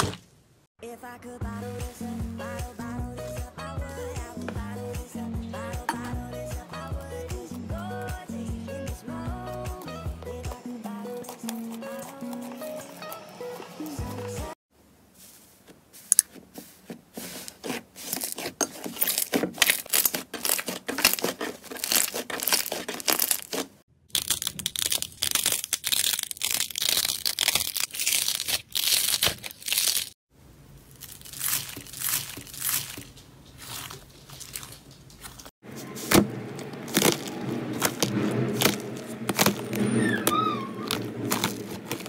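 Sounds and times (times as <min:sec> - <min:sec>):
slime crackling and popping: 0:19.0 - 0:30.2, 0:30.9 - 0:35.5, 0:36.6 - 0:42.0.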